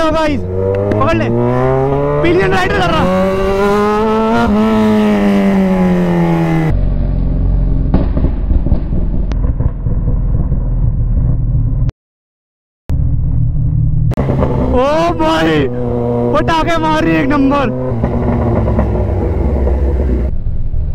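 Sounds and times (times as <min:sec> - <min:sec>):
motorcycle engine running: 0:00.0 - 0:11.9, 0:12.9 - 0:20.9
rumbling engine and wind noise: 0:00.0 - 0:11.9, 0:12.9 - 0:20.9.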